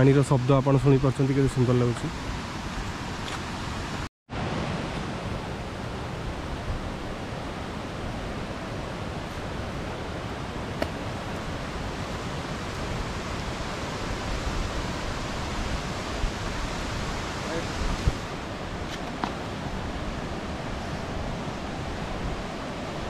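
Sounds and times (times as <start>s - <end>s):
waterfall rushing: 3.9s - 18.8s.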